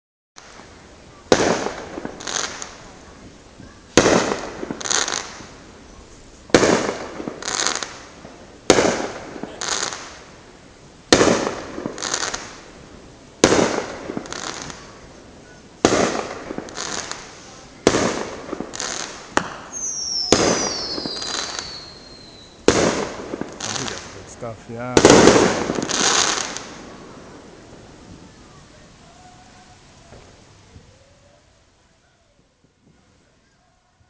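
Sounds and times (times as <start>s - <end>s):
fireworks bursting: 0.4s - 34.0s
fireworks crackle: 0.4s - 34.0s
falling whistle: 19.7s - 22.6s.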